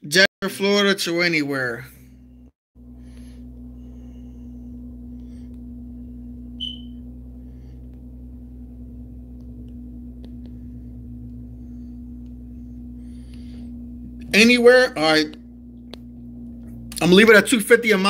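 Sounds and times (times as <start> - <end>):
low electrical hum: 1.1 - 18.0
high chirp: 6.6 - 7.0.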